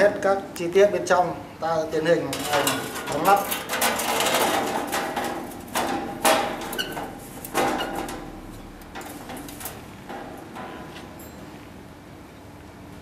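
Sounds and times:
handling rattles: 2.3s - 11.8s
metal cover knocks and scrapes: 2.4s - 11.3s.

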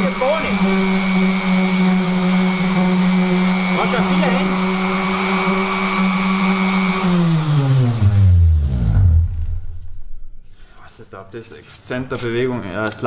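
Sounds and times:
orbital sander running: 0.0s - 10.2s.

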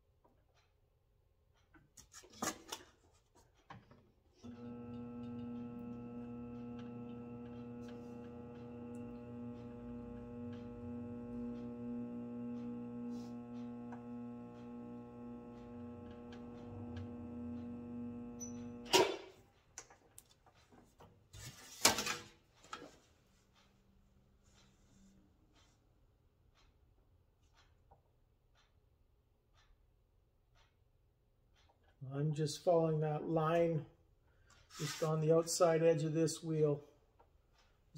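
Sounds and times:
bead roller motor humming: 4.5s - 18.9s.

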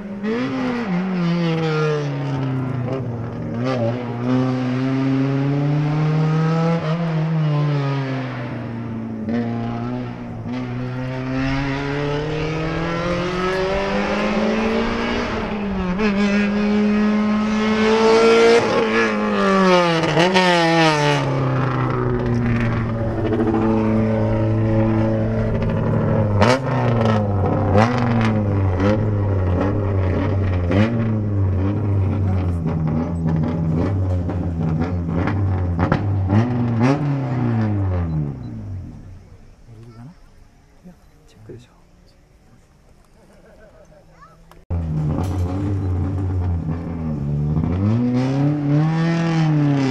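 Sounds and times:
racing car engine revving: 0.0s - 39.3s, 44.5s - 49.9s
engine throttle blips: 8.2s - 39.9s, 44.5s - 49.9s.

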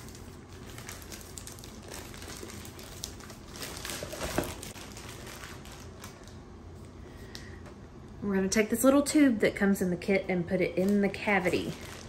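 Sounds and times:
plastic bag rustling and crinkling: 0.0s - 6.4s, 10.7s - 12.0s.

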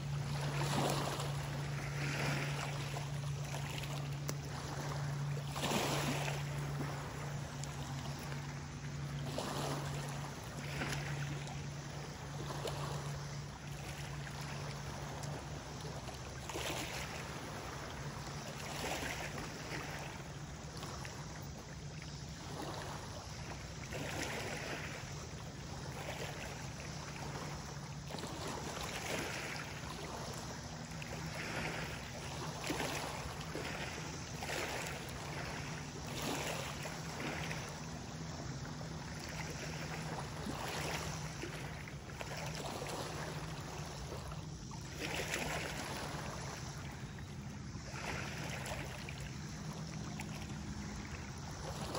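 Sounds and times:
low hum: 0.0s - 23.9s
waves lapping on gravel shore: 0.0s - 51.9s.

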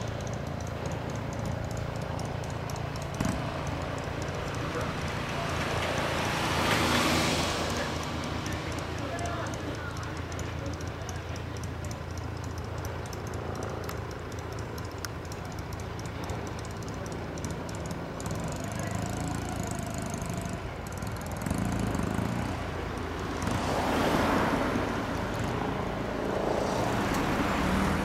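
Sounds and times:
car passing: 0.0s - 11.7s, 18.2s - 28.0s
motorcycle engine running: 0.0s - 28.0s
traffic noise: 0.0s - 28.0s.

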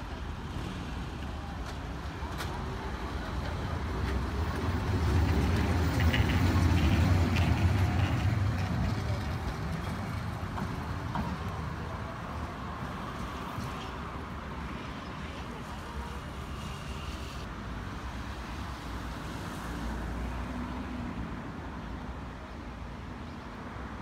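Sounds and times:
electric tram rumbling past: 0.2s - 14.4s.

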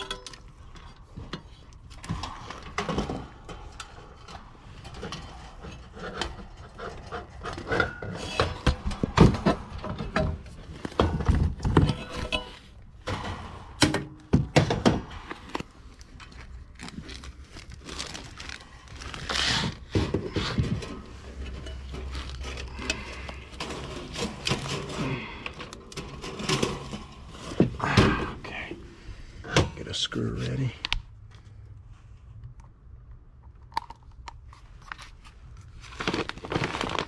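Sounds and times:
metal knocks clunks and scrapes: 0.0s - 15.5s, 19.7s - 28.7s
wiring rustling: 14.9s - 28.0s, 34.4s - 37.0s.

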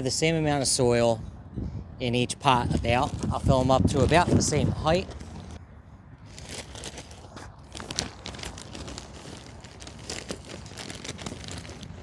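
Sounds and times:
plastic bag crinkling: 6.3s - 12.0s.

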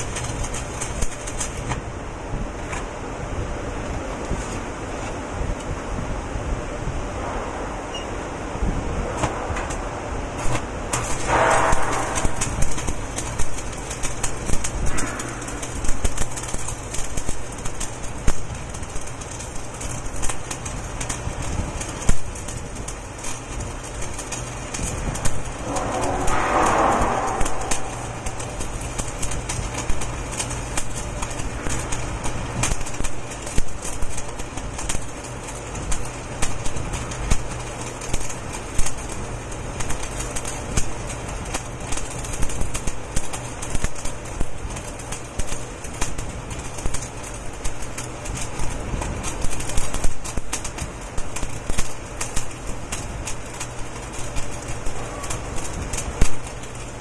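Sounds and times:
welding arc crackling: 0.0s - 5.7s, 8.7s - 57.0s
rushing noise: 7.0s - 13.8s, 25.0s - 30.2s
low hum: 22.0s - 33.0s.

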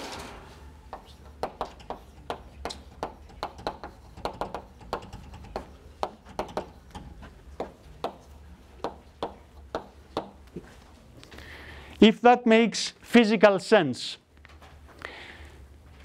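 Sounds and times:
chalk tapping and scraping: 0.9s - 10.7s.

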